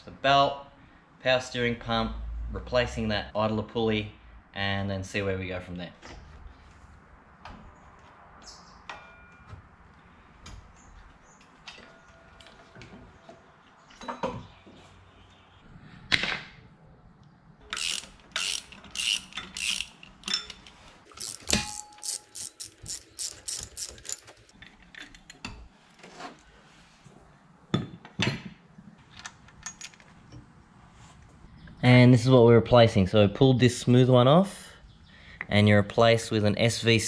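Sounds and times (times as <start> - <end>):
metal knocks of tools: 8.8 - 9.7, 13.9 - 14.5
socket ratchet clicking: 17.7 - 20.3, 21.1 - 24.5.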